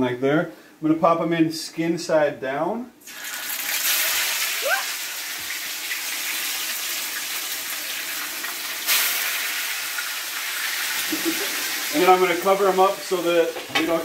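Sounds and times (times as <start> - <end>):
fish sizzling in a pan: 3.0 - 13.8.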